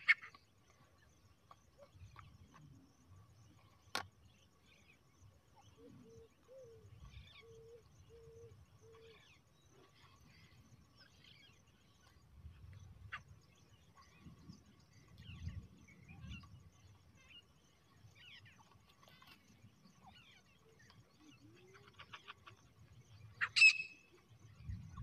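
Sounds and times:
low hooting bird calls: 5.6s - 11.7s.

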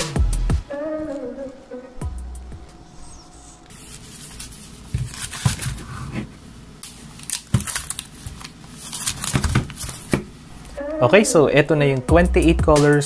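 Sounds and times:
plastic crinkling: 3.7s - 6.1s, 6.8s - 10.3s.

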